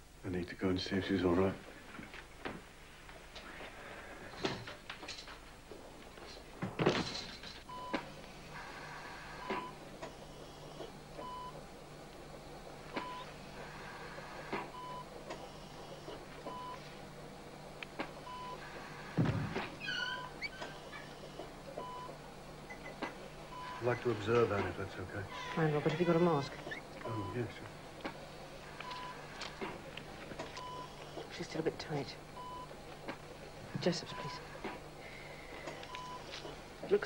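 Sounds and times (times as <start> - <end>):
low steady hum: 0.0 - 37.0
patient monitor beeping: 7.6 - 11.6, 12.4 - 16.9, 17.6 - 19.1, 20.1 - 33.0, 33.8 - 36.6.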